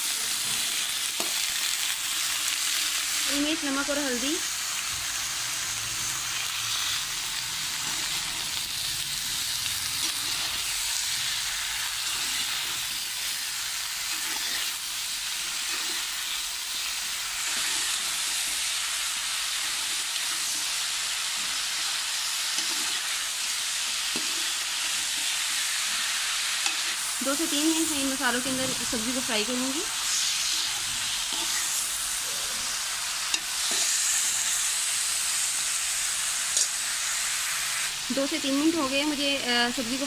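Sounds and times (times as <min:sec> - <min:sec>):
vegetables sizzling in oil: 0:00.0 - 0:40.0
faint stirring scrapes: 0:12.0 - 0:18.6, 0:29.9 - 0:34.5.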